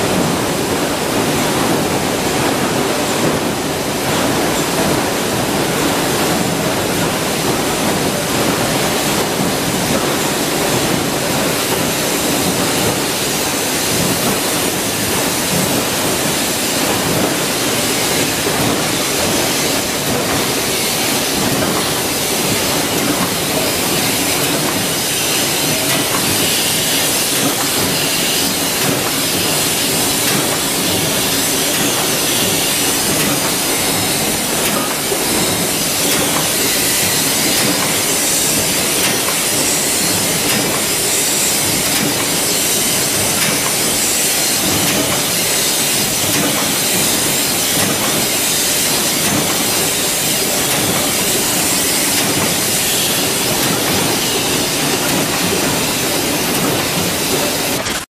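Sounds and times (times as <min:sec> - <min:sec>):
metal-stamping presses clattering: 0:18.1 - 0:58.0.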